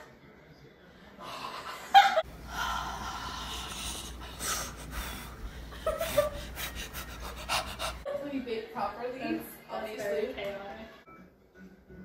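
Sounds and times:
breathy rush of breathing: 0.9 - 8.1.

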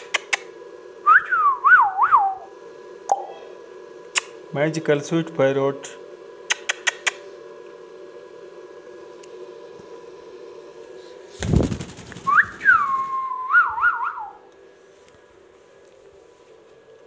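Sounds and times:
whistle gliding up and down: 12.2 - 14.4.

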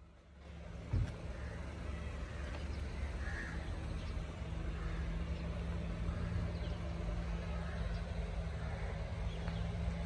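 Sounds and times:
car engine running slowly: 0.0 - 10.0
crow cawing faintly: 1.1 - 3.9, 4.5 - 9.5.

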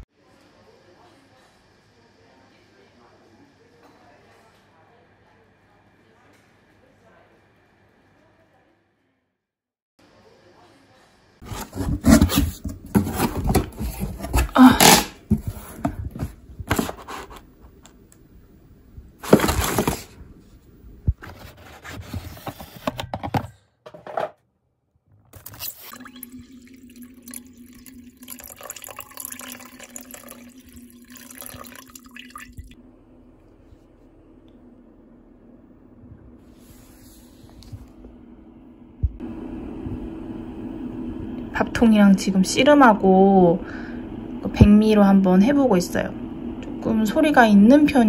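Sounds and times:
water splashing and running: 25.6 - 32.8
steady low hum: 26.9 - 48.0.

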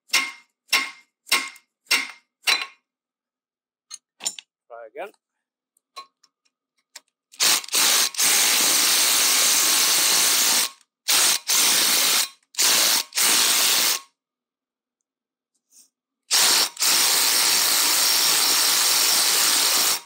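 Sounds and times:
impact driver hammering: 0.1 - 2.7.

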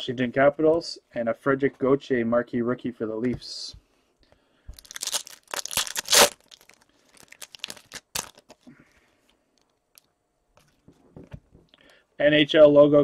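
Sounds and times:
wrapper ripping and crinkling: 4.8 - 8.6.

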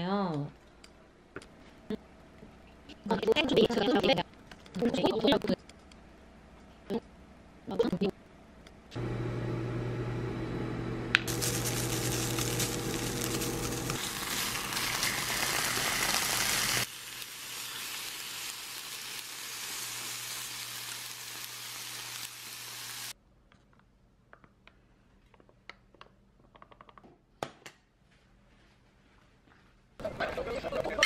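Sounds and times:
food sizzling in oil: 11.3 - 23.2.

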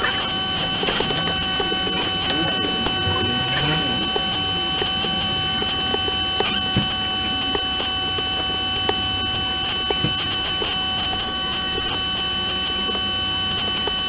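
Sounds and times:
high electrical whine: 0.0 - 14.0.

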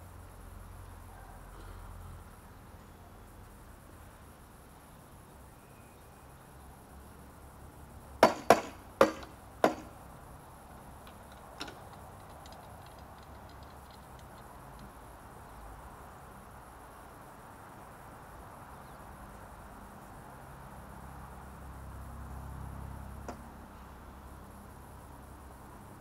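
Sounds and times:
low steady background noise: 0.0 - 26.0
hard objects knocking: 8.2 - 10.0
light ticks: 11.0 - 15.0.

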